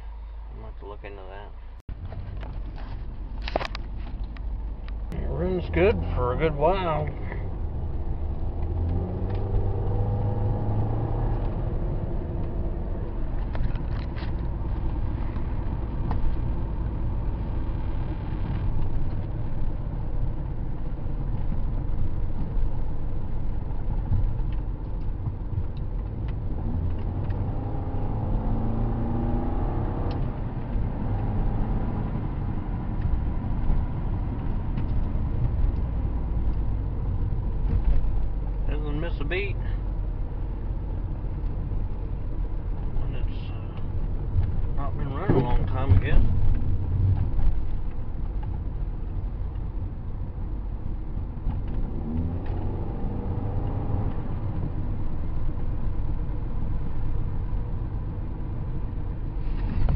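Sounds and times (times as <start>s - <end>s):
car engine and road rumble: 0.0s - 59.9s.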